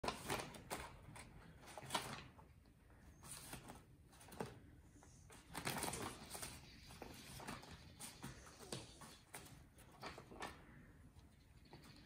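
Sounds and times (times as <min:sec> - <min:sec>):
paper bag rustling and crinkling: 0:00.0 - 0:02.4.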